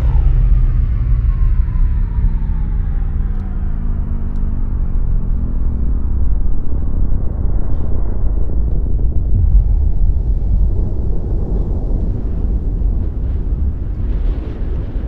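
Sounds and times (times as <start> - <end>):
faint downward gliding tone: 0.0 - 7.2
deep steady low rumble: 0.0 - 15.0.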